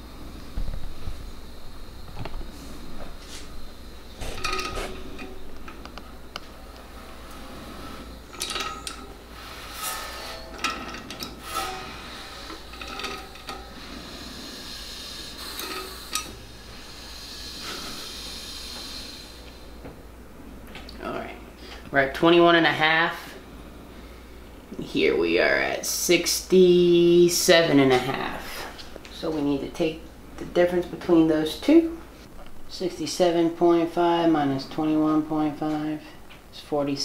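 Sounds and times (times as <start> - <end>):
metallic clinks and rubbing: 4.2 - 6.4, 7.0 - 16.3.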